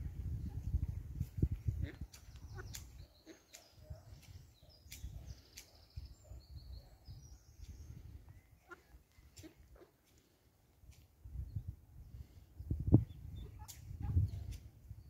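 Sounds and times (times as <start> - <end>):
wind rumble on microphone: 0.0 - 3.1, 3.7 - 8.4, 11.2 - 15.0
ducklings peeping: 1.6 - 6.0, 7.5 - 10.0.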